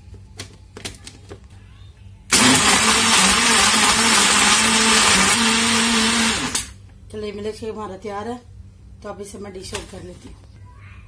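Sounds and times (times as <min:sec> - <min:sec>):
electric blender running: 0:02.3 - 0:06.8.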